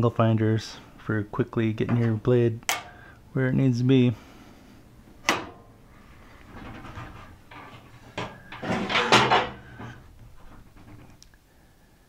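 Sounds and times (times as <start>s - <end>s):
metal sliding and scraping: 5.2s - 11.1s.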